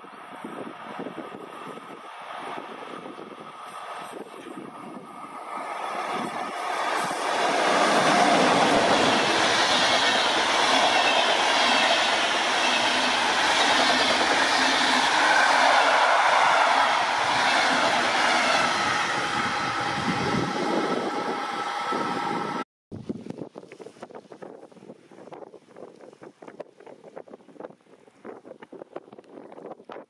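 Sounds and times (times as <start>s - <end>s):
train passing at speed: 0.0s - 22.7s.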